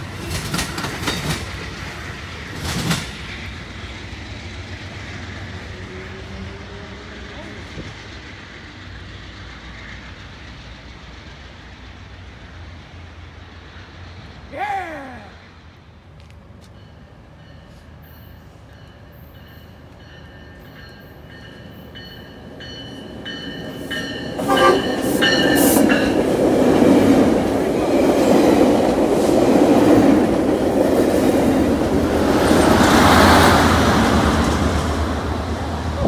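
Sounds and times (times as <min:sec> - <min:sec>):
train wheels rumbling on rails: 0:00.0 - 0:36.0
crossing bell dinging: 0:16.6 - 0:26.2.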